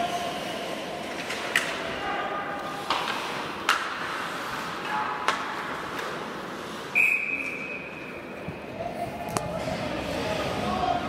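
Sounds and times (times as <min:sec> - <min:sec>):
hockey sticks clacking on puck: 0:01.0 - 0:02.0, 0:02.6 - 0:06.8
referee's whistle: 0:06.9 - 0:08.0.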